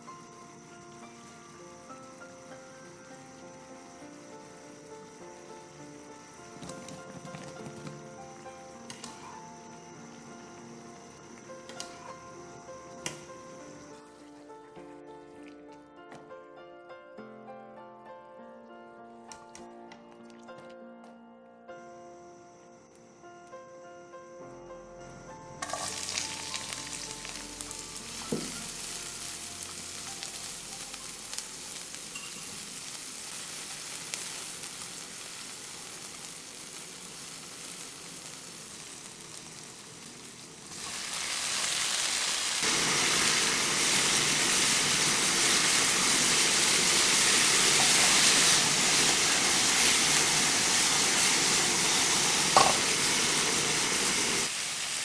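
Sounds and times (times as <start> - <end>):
food sizzling in hot oil: 0.0 - 13.9, 25.6 - 55.0
spatula knocking frying pan: 52.6 - 52.9.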